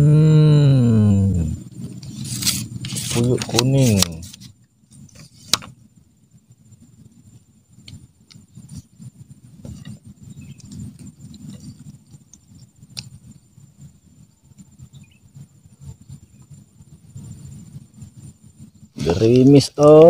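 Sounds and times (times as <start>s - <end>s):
high-pitched insect drone: 0.0s - 4.3s
rustling handling noise on microphone: 1.6s - 5.9s, 6.8s - 19.6s.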